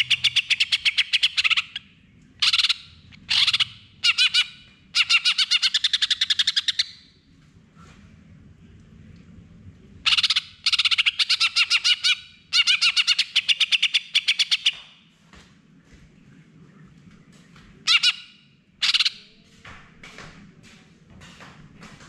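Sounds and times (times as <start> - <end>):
bird singing rapid notes: 0.0 - 7.0.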